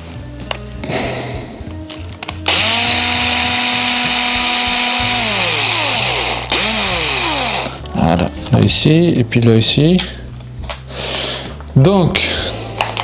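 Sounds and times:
electric screwdriver motor: 2.4s - 7.8s.

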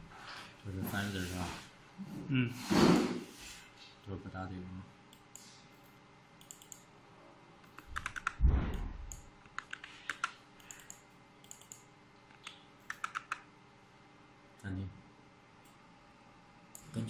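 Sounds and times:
computer keyboard keys clicking: 6.4s - 6.9s, 7.6s - 8.4s, 9.1s - 13.5s.

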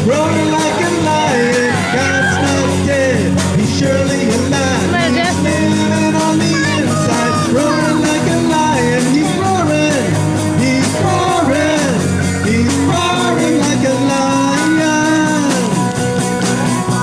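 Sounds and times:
person singing: 0.0s - 16.1s
bass guitar: 0.0s - 17.0s
drum kit: 0.0s - 17.0s
electric guitar: 0.0s - 17.0s.

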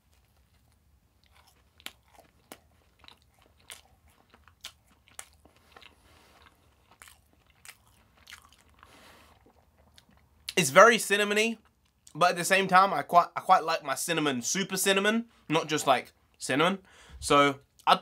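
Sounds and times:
chewing with wet mouth clicks: 0.1s - 10.6s.

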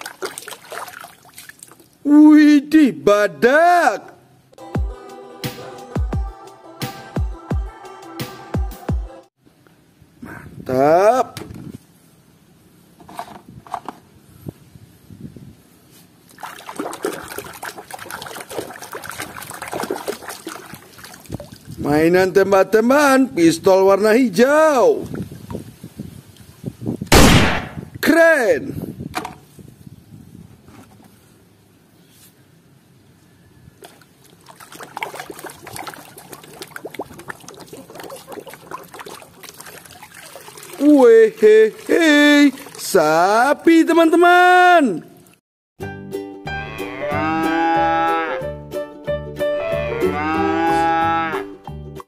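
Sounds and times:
water splashing and sloshing in tub: 0.0s - 2.0s, 16.3s - 21.8s, 33.8s - 43.1s, 44.9s - 45.4s.

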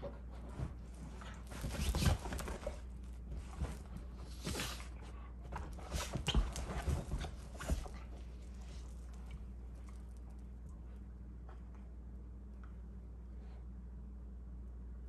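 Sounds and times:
dogs scuffling on couch: 0.0s - 9.4s.

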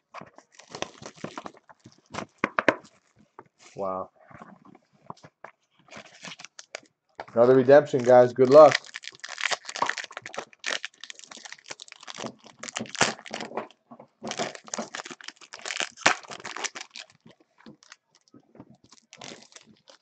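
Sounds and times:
foil wrapper crinkling and tearing: 0.3s - 3.2s, 5.9s - 6.9s, 7.8s - 20.0s.

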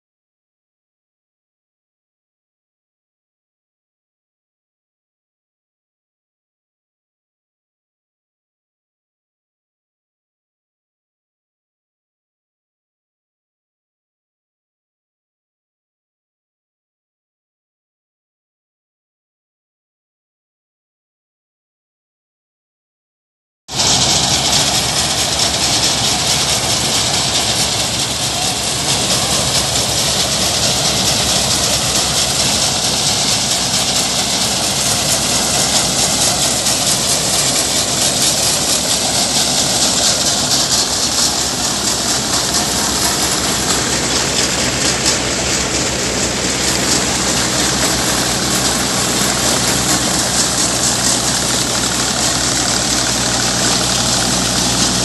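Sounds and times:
combine harvester engine hum: 23.7s - 55.0s
loud mechanical hiss: 23.7s - 55.0s.

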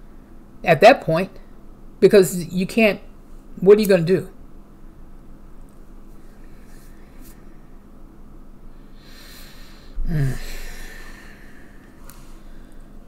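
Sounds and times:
faint steady hum: 0.0s - 13.0s
woman breathing in: 8.7s - 13.0s
woman sighing: 10.0s - 11.9s.

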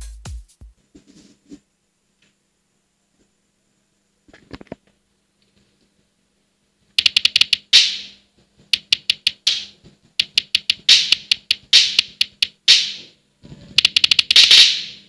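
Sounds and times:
hi-hat and cymbal hits: 0.0s - 0.7s, 10.3s - 13.1s.

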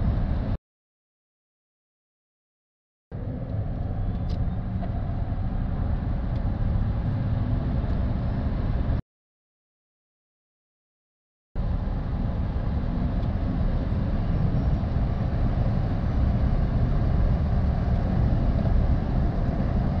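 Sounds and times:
tyre and wind noise in car cabin: 0.0s - 0.6s, 3.1s - 9.0s, 11.6s - 20.0s.

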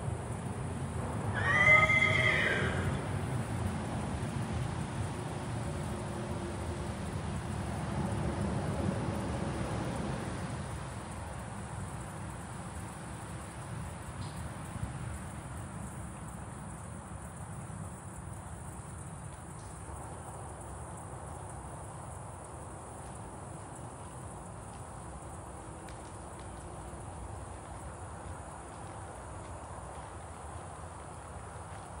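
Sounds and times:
insects chirring: 0.0s - 32.0s
faint ticks: 12.7s - 32.0s.

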